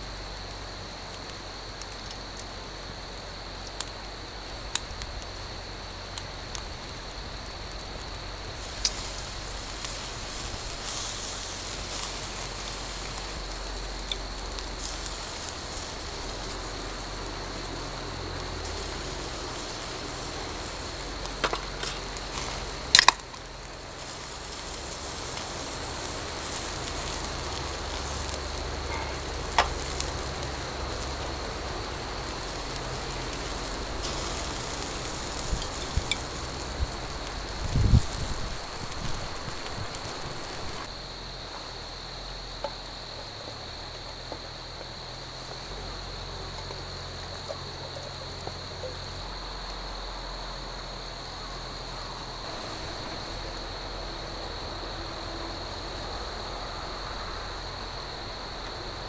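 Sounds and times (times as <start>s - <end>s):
outdoor hiss: 0.0s - 59.0s
faint crackling: 1.0s - 41.7s.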